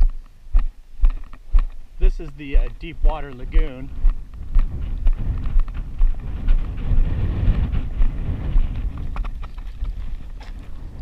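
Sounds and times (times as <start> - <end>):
wind buffeting microphone: 0.0 - 11.0
bike tyres crunching on gravel: 3.9 - 11.0
bike knocking and rattling: 4.1 - 11.0.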